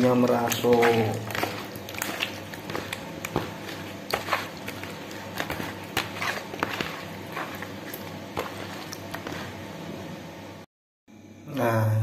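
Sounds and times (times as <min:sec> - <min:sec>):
hand squelching paste into fish: 0:00.3 - 0:09.5.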